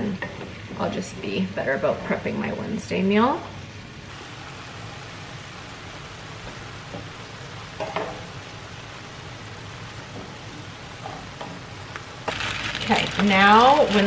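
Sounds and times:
meat sizzling in frying pan: 4.0s - 14.0s.

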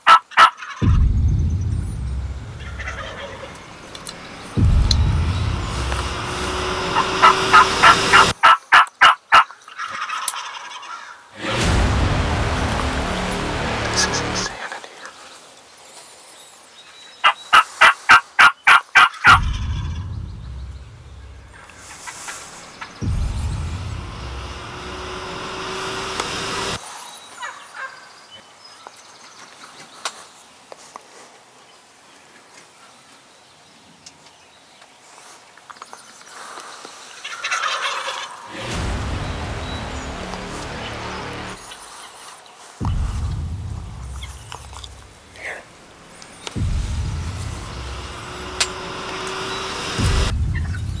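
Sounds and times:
turkey gobbling: 0.0s - 0.8s, 2.6s - 4.1s, 7.0s - 11.3s, 17.2s - 20.0s, 37.2s - 38.6s.

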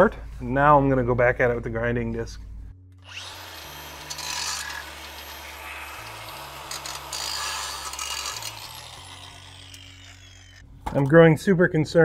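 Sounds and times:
grinder motor whine: 3.0s - 10.7s
disc grinding metal bolt: 3.1s - 10.6s.

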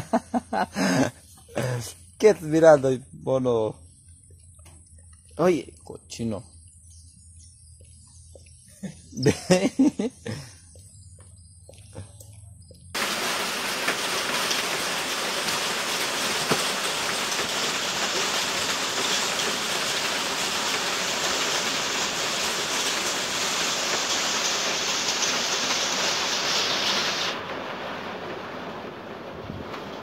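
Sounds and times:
heavy rain: 0.0s - 1.9s, 9.2s - 10.4s, 13.0s - 30.0s.

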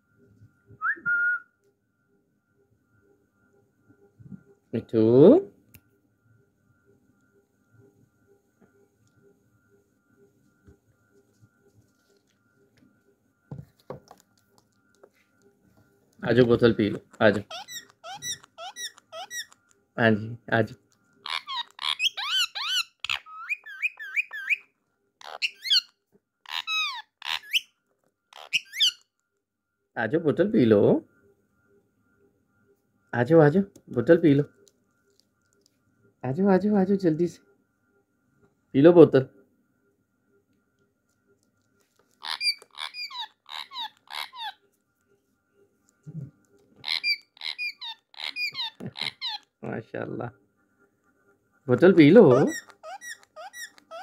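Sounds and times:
parrot squawks: 17.2s - 19.6s, 21.2s - 27.7s, 28.3s - 29.1s, 42.2s - 44.6s, 46.8s - 49.5s, 52.3s - 54.0s
parrot whistled chirps: 17.3s - 19.6s, 21.3s - 25.9s, 26.5s - 27.7s, 28.4s - 29.1s, 42.2s - 44.6s, 46.8s - 49.5s, 52.3s - 54.0s.

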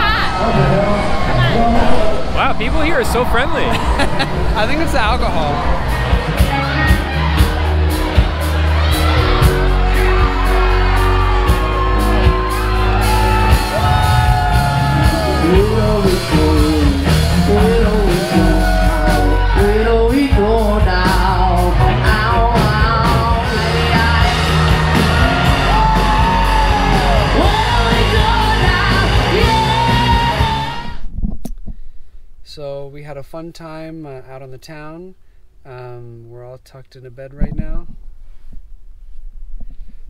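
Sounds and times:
crowd yelling: 0.0s - 31.0s
heavy bass: 0.0s - 31.1s
drums: 0.0s - 32.8s
electric guitar: 3.8s - 31.0s
man singing: 15.0s - 30.8s.

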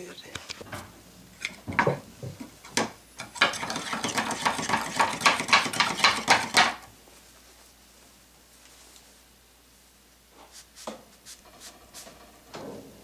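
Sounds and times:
screwdriver scraping metal paint can: 3.4s - 6.2s.

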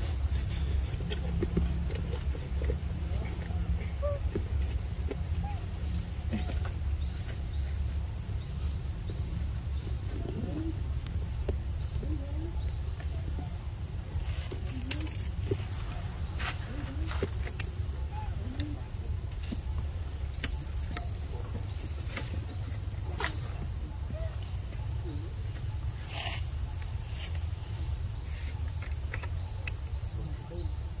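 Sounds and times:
high-pitched insect chorus: 0.0s - 31.0s.

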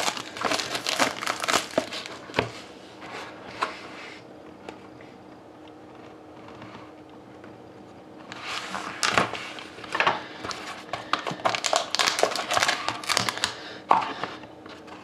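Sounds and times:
packaging crinkling: 0.0s - 2.5s, 8.4s - 13.7s.

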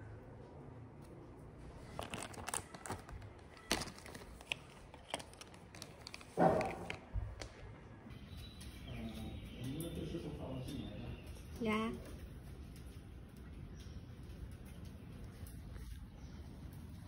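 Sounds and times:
plastic wrapper crinkling: 1.7s - 7.7s
small plastic parts clicking: 1.9s - 7.6s.

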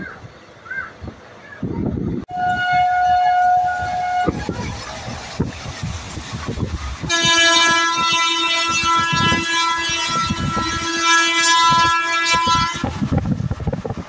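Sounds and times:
train knocking and rattling: 0.9s - 14.0s
locomotive horn blast: 2.3s - 4.9s, 6.9s - 13.2s.

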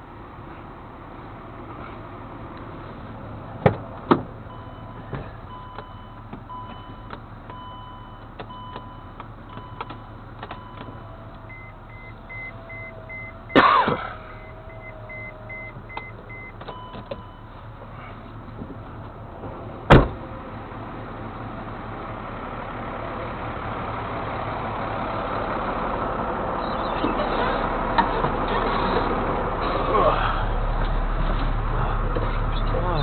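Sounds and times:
vehicle warning chime beeping: 4.4s - 13.6s, 14.2s - 17.6s
loud thump: 19.9s - 20.2s.

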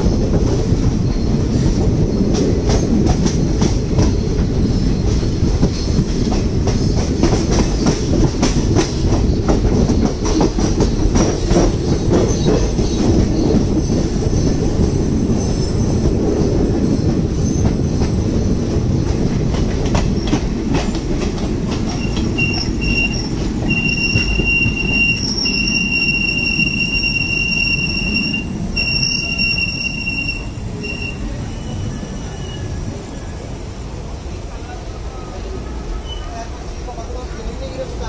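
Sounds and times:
train rumbling on track: 0.0s - 38.0s
high steady squeal: 21.9s - 33.6s.

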